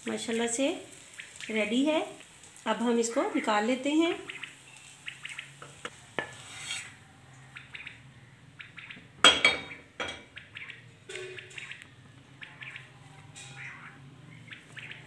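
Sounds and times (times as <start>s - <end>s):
utensils scraping frying pan: 5.8s - 7.0s
utensil clattering on plate: 9.2s - 10.3s.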